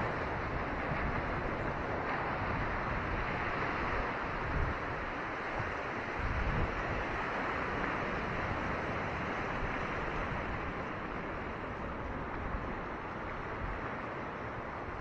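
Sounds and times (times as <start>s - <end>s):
ocean surf on rocky shore: 0.0s - 15.0s
wind buffeting microphone: 0.0s - 15.0s.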